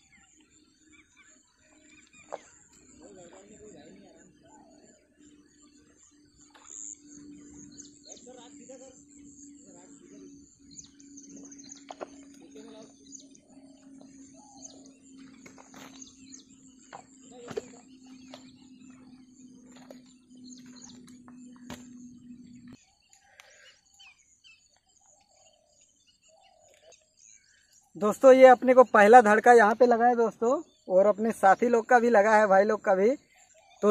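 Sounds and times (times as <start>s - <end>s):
steady low hum: 0.0s - 22.9s
birds chirping: 0.0s - 33.9s.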